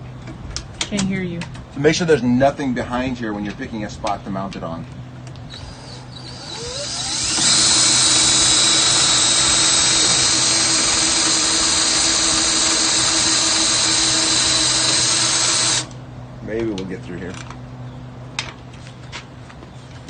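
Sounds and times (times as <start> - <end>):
cordless drill whining: 5.5 - 16.0.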